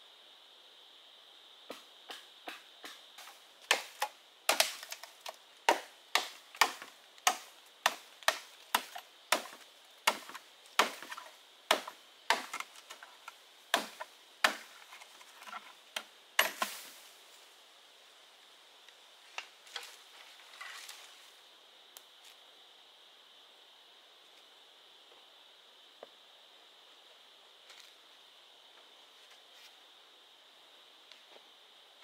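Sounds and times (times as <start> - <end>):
chopping strikes on wood: 1.7 - 5.1, 5.7 - 12.7, 13.7 - 14.7, 16.0 - 16.8.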